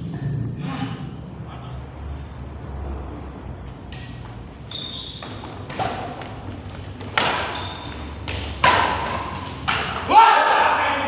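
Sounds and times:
rackets striking shuttlecock: 0:03.8 - 0:10.1
shoe squeaks on court floor: 0:04.6 - 0:06.4, 0:07.2 - 0:08.3.

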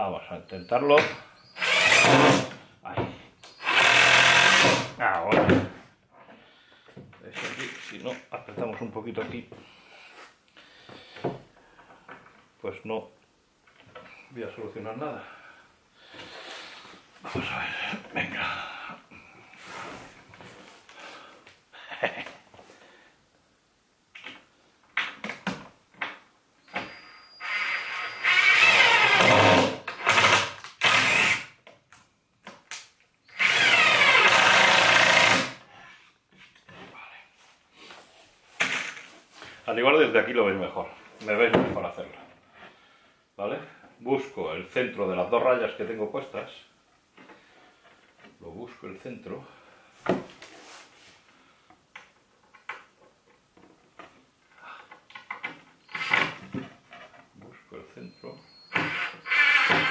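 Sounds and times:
drill-driver driving screws into wood: 0:01.0 - 0:02.6, 0:03.5 - 0:04.9, 0:26.7 - 0:31.6, 0:33.3 - 0:35.6, 0:55.8 - 0:56.4, 0:58.7 - 0:59.9
drill clicks: 0:27.4 - 0:31.4, 0:33.4 - 0:35.4, 0:58.7 - 0:59.9.

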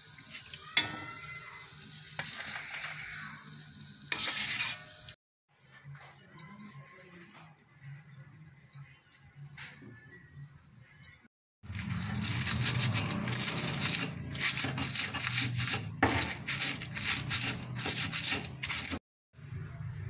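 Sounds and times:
stone pestle grinding in mortar: 0:11.8 - 0:19.0.

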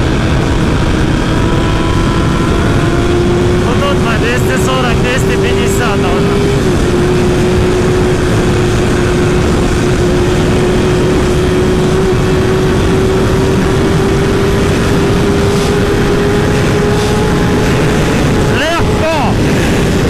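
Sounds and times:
motorcycle engine at high revs: 0:00.0 - 0:20.0
wind rush: 0:00.0 - 0:20.0.

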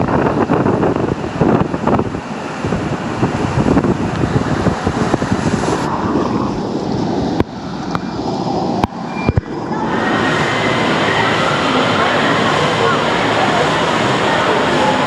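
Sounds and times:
water rushing in waterslide: 0:00.0 - 0:15.0.

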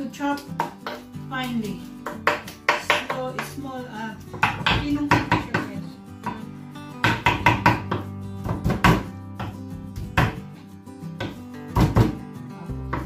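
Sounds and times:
knife chopping on wooden board: 0:00.6 - 0:01.1, 0:02.0 - 0:03.5, 0:04.3 - 0:06.4, 0:07.0 - 0:10.4, 0:11.2 - 0:12.2.

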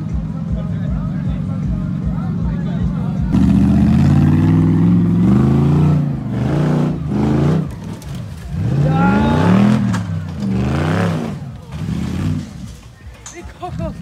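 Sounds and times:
engine revving hard: 0:03.4 - 0:07.9, 0:08.5 - 0:12.6.

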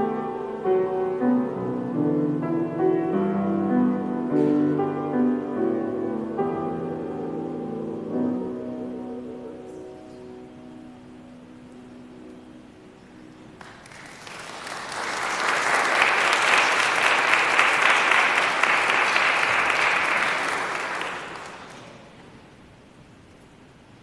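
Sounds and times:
piano chord: 0:00.0 - 0:13.8
congregation applauding: 0:13.5 - 0:22.5.

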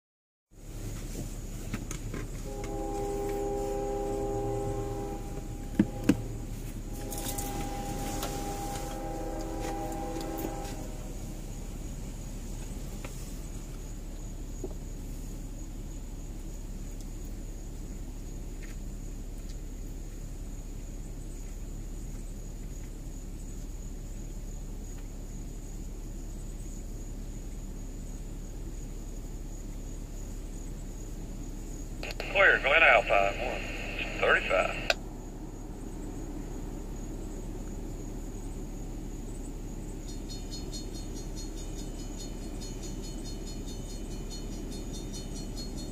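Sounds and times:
insects chirring: 0:02.2 - 0:45.9
locomotive air horn blasts: 0:02.3 - 0:11.9.

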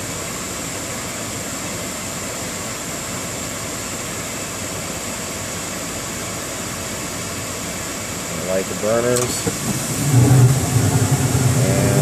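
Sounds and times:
furnace fan motor running: 0:09.0 - 0:12.0.

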